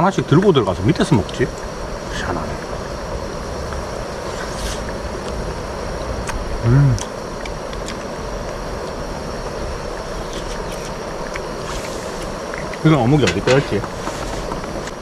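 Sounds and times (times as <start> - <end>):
man humming: 6.6 - 7.2.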